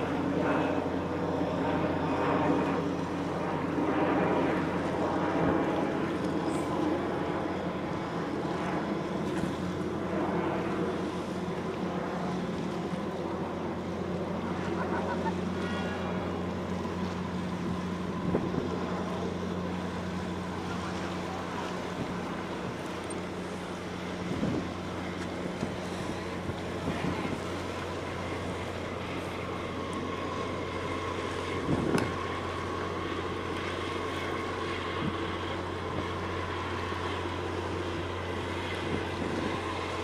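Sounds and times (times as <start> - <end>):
ship engines humming: 0.0 - 40.0
waves on water: 0.0 - 40.0
wind on microphone: 17.5 - 19.2, 24.1 - 28.3, 31.5 - 32.4, 38.7 - 39.8.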